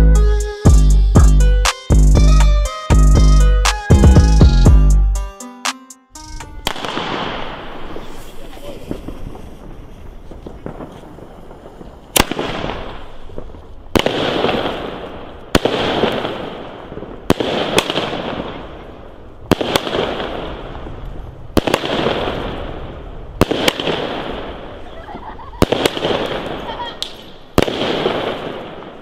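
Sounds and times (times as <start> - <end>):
firework bangs with crackling hiss: 6.6 - 29.0.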